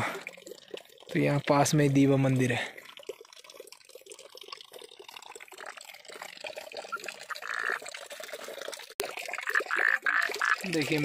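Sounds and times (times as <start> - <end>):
water pouring into stone cistern: 0.0 - 11.0
frog croak: 7.2 - 7.8, 9.4 - 10.7.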